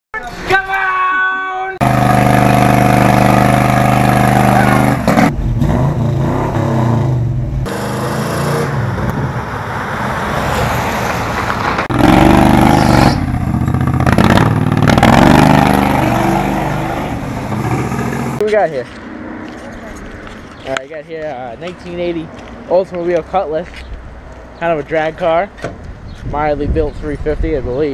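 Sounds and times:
engines running and revving: 1.8 - 20.8.

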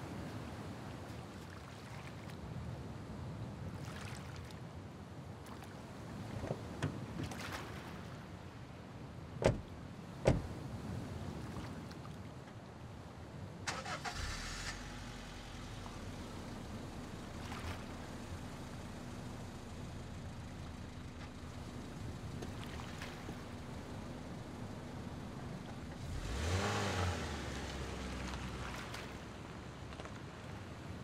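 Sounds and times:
car doors slamming: 9.4 - 10.6
car engine starting and idling: 13.7 - 22.5, 23.2 - 28.7.

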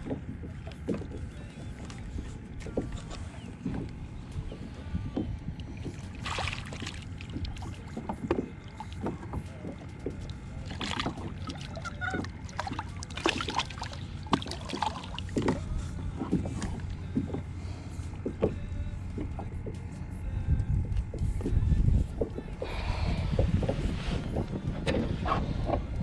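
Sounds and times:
low steady rumble: 0.0 - 26.0
water splashing beside kayak: 0.0 - 26.0
tackle knocking against kayak: 18.2 - 19.8.

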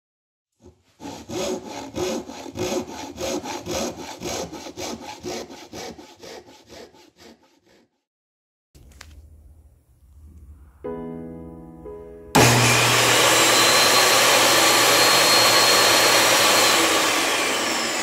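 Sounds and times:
hand saw cutting wood: 0.6 - 8.1, 12.4 - 18.0.

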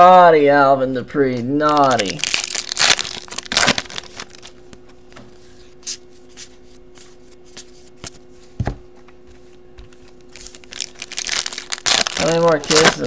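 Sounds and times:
foil pack crinkling: 1.6 - 4.7, 10.2 - 13.0.

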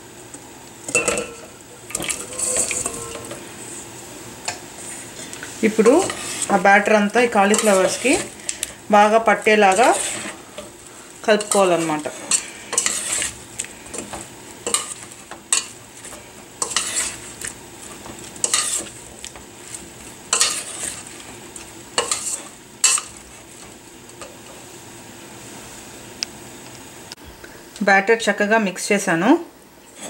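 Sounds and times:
metal spoon stirring batter in bowl: 0.9 - 3.4, 5.7 - 19.0, 19.7 - 21.2.

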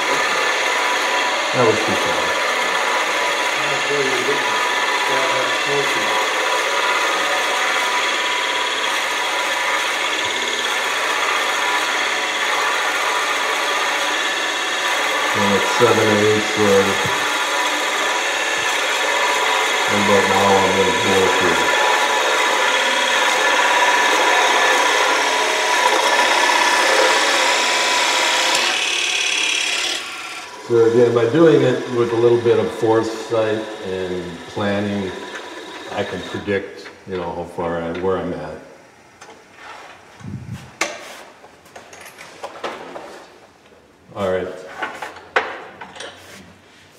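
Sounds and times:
drill bit rasping into wood: 0.0 - 36.6
wood lathe running: 0.0 - 37.0.

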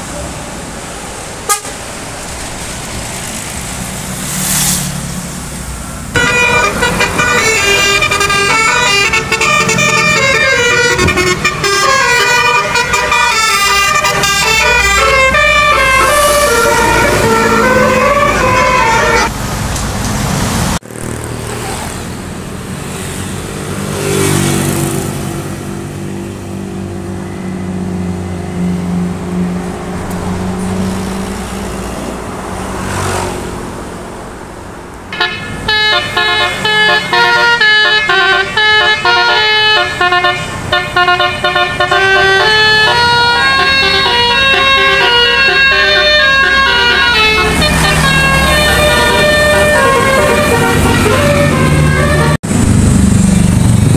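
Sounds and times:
bus engine: 0.0 - 53.9
passing traffic: 0.0 - 53.9
bus air horn melodies: 1.4 - 1.8, 6.1 - 19.3, 35.1 - 52.4.

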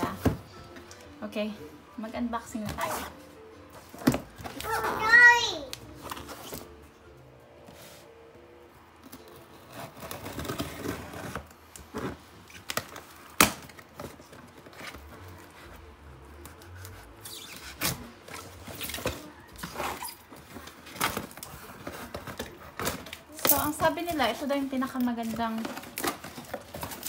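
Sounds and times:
cardboard box being handled: 13.8 - 23.1.

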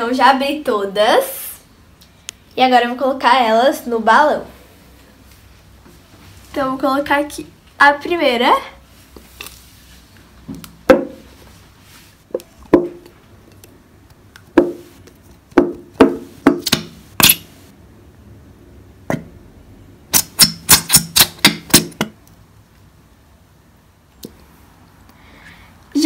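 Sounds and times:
sharp knocks and pops: 10.5 - 11.2, 12.3 - 13.1, 14.4 - 14.8, 15.5 - 17.4, 19.1 - 19.3, 20.2 - 22.2
plastic glue bottle squeezed: 20.1 - 22.0.

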